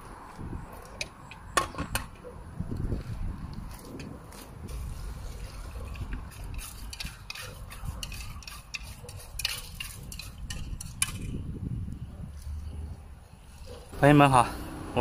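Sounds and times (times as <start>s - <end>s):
wind rumble on microphone: 0.0s - 14.0s
metal pot clinks and scrapes: 5.9s - 11.3s.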